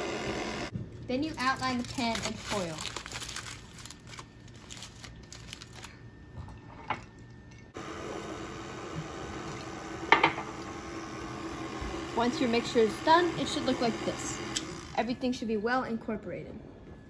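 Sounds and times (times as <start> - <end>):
stand mixer humming: 0.0 - 0.7, 7.8 - 15.0
aluminium foil crinkling: 1.1 - 6.0.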